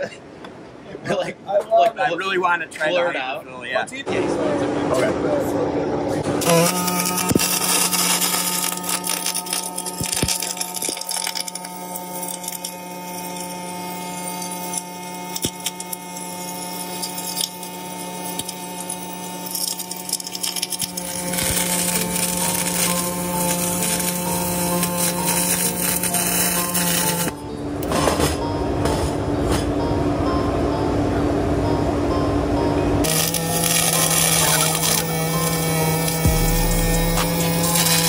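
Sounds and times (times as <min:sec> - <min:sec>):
welding arc crackling hiss: 0:06.4 - 0:27.4, 0:33.1 - 0:38.0.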